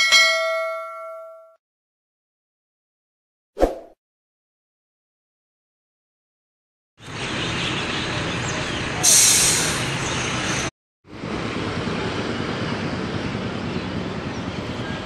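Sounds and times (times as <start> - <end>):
cars and motorbikes passing: 7.0 - 9.1, 9.8 - 15.0
loud hissing rush: 9.0 - 10.0.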